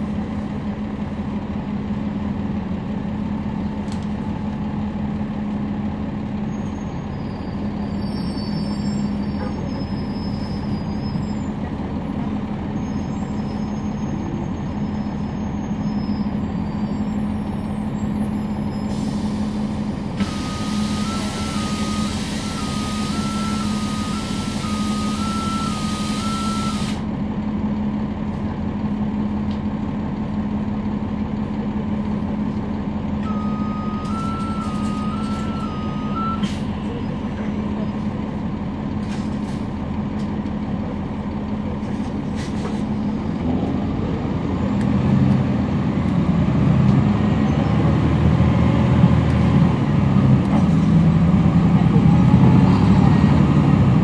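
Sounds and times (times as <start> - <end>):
bus diesel engine hum: 0.0 - 54.0
two-tone beeping: 20.3 - 26.8, 33.2 - 36.5.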